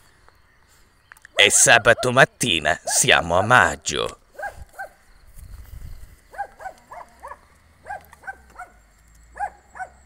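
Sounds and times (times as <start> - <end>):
dog barking in high yaps: 4.4 - 5.0, 6.3 - 8.8, 9.4 - 10.0.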